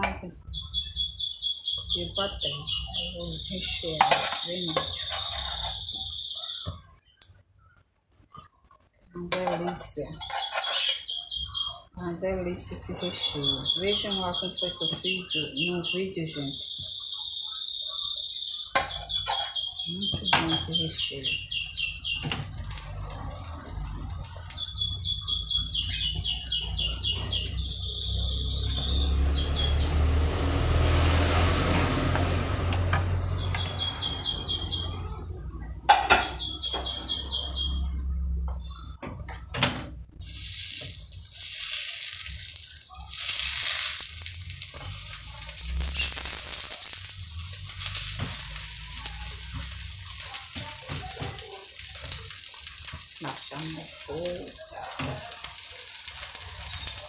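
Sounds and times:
bird chirping trills: 0.0s - 31.6s, 32.2s - 54.8s
spatula scraping pan: 4.0s - 6.0s, 9.3s - 11.0s, 18.8s - 19.7s
omelette sizzling in a frying pan: 21.1s - 33.4s, 40.2s - 57.0s.

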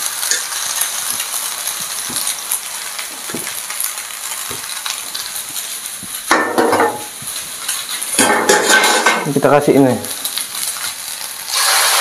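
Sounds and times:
pasta sizzling in oil: 0.0s - 12.0s
water hissing as it boils off: 0.0s - 12.0s.

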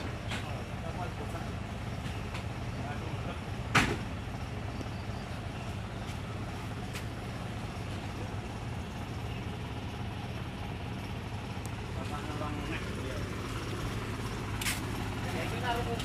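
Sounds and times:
truck engine idling: 0.0s - 16.0s
sharp knock: 3.7s - 4.0s.

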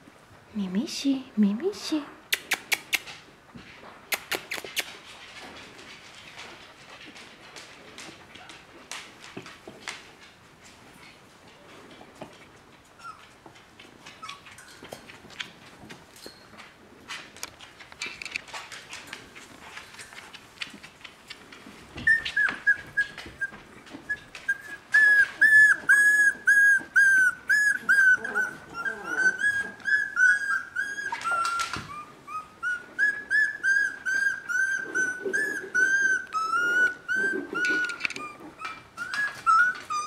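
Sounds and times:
puppies rustling on blankets: 3.0s - 40.0s
puppy whining in high squeals: 13.0s - 13.3s, 22.0s - 40.0s.

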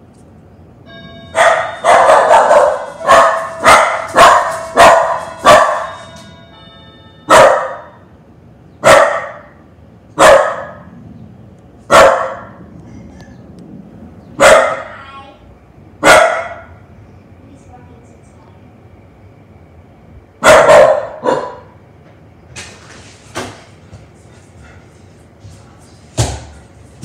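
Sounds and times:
doorbell chime: 0.8s - 3.7s, 4.6s - 8.1s
puppy barking: 1.4s - 6.0s, 7.3s - 8.0s, 8.8s - 9.6s, 10.2s - 10.9s, 11.9s - 12.6s, 14.4s - 14.9s, 16.0s - 16.8s, 20.4s - 21.8s.

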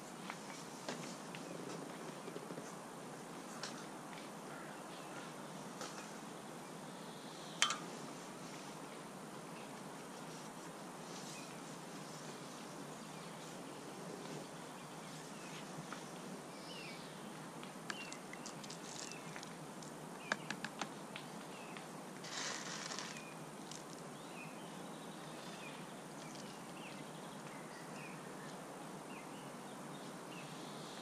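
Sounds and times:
faint outdoor hiss: 0.0s - 31.0s
small birds chirping: 4.5s - 31.0s
short rustle: 22.2s - 24.0s.

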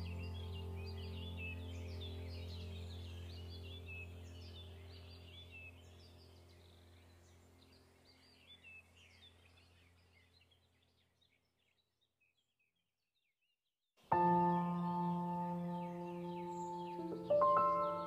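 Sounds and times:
low held drone: 0.0s - 7.2s, 14.2s - 18.0s
small birds chirping: 0.0s - 18.0s.

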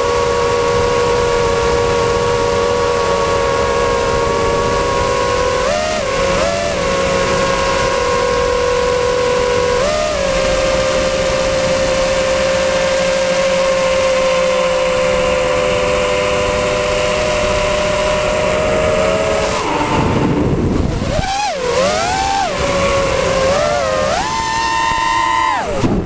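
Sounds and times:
drone motors and propellers whining: 0.0s - 26.0s.

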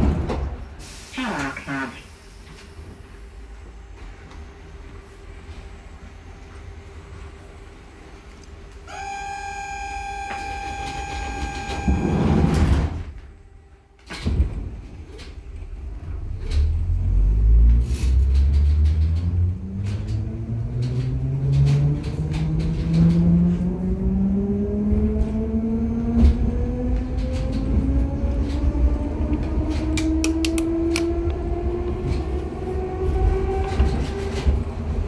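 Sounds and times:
train doors closing with air rush: 0.0s - 24.1s, 24.8s - 35.0s
door warning tone: 8.9s - 12.9s
wheels clicking on rails: 17.6s - 24.2s, 26.1s - 35.0s.

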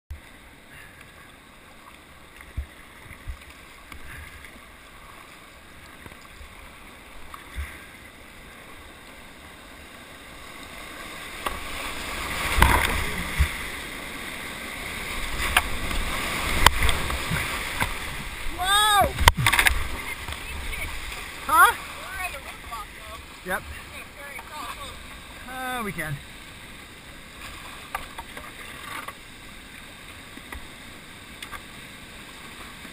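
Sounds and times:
flowing water: 0.1s - 32.9s
rushing whitewater: 0.2s - 32.9s
knocks and splashes against boat: 11.4s - 13.7s, 15.3s - 21.3s.

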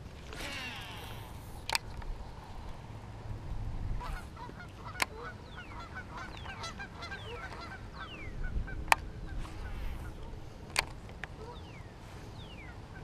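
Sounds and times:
birds calling: 4.0s - 13.0s.

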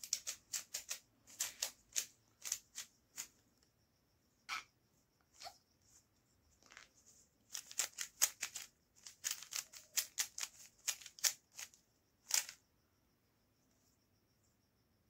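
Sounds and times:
puzzle cube layers clicking: 7.5s - 12.6s.

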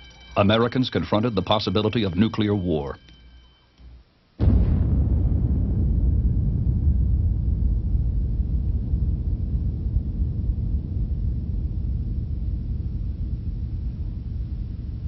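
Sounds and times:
deep explosion rumble: 4.4s - 15.0s.

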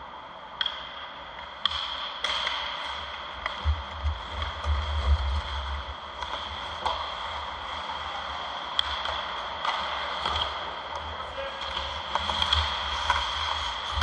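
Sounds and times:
hockey sticks and puck clicking: 0.5s - 14.0s
skates hissing on ice: 12.3s - 14.0s.

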